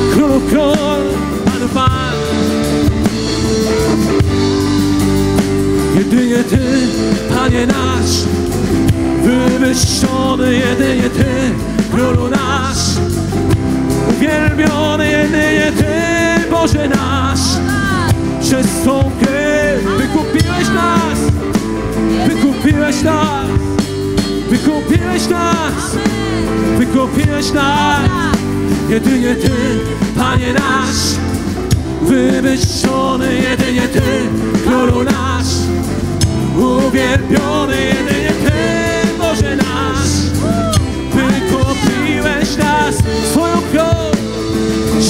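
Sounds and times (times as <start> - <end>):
singers improvising melodic lines: 0.0 - 45.0.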